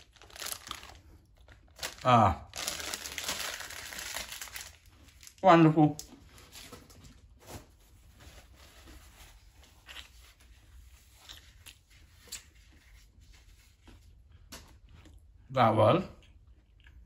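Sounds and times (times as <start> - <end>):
paper napkin and wrapper rustling: 0.0 - 1.0, 1.8 - 5.4, 6.0 - 13.9.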